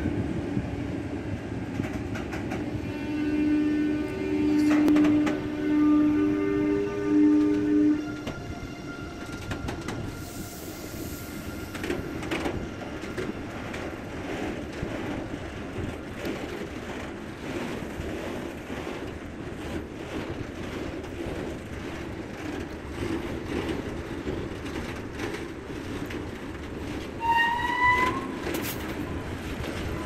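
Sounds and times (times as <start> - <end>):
train wheels rumbling on rails: 0.0 - 30.0.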